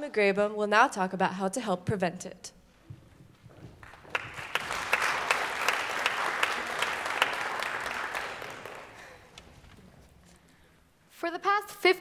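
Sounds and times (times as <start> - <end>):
audience clapping: 3.6 - 9.4.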